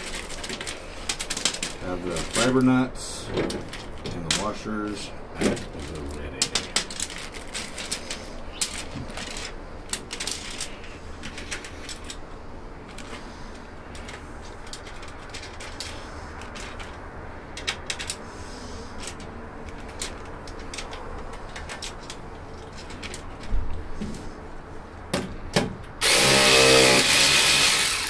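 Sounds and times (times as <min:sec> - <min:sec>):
metal nuts and bolts clinking: 0:13.9 - 0:18.3.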